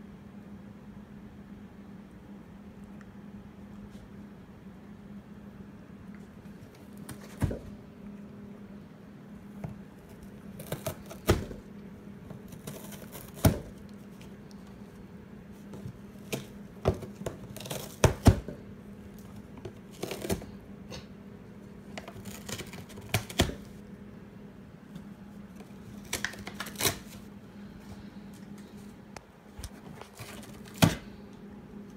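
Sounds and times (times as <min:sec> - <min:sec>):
faint steady hum: 0:00.0 - 0:31.9
cardboard ripping: 0:10.1 - 0:11.6, 0:12.4 - 0:13.8, 0:16.2 - 0:18.5, 0:19.9 - 0:20.5, 0:22.0 - 0:23.8, 0:25.9 - 0:27.2, 0:30.0 - 0:31.0.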